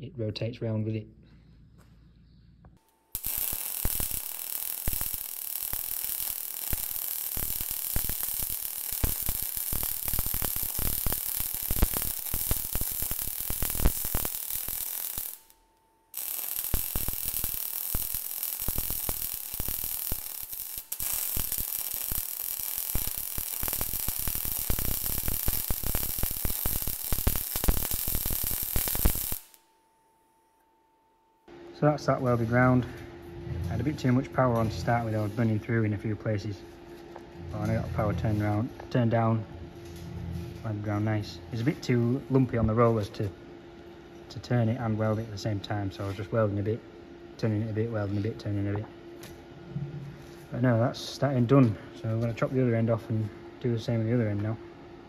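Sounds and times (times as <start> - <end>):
welder arc crackling: 2.8 - 29.7.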